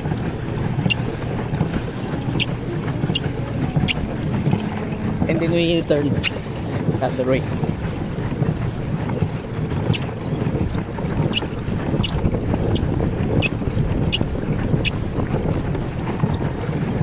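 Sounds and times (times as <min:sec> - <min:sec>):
churned water: 0:00.0 - 0:17.0
wind on microphone: 0:00.0 - 0:17.0
slippers squeaking on pedals: 0:03.1 - 0:04.0, 0:09.2 - 0:10.1, 0:11.3 - 0:12.2.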